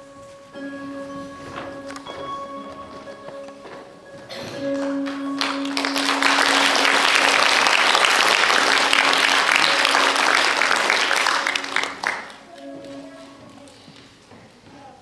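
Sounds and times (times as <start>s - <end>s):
held music note: 0.0s - 14.0s
audience applause: 4.7s - 12.5s.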